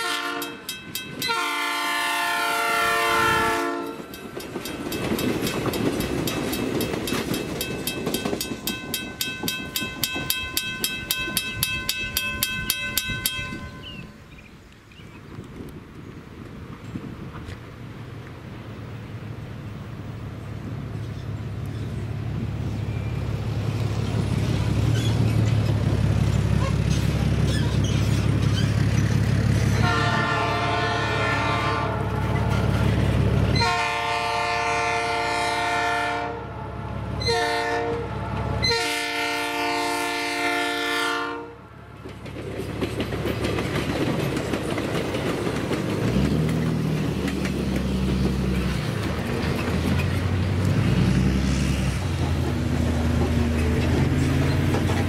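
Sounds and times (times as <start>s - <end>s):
multi-tone train horn: 0.0s - 4.2s, 29.7s - 32.8s, 33.5s - 41.8s
diesel rail car engines: 0.0s - 55.0s
rail cars rumbling past: 0.0s - 55.0s
crossing signal bell: 0.4s - 1.5s, 6.3s - 14.2s.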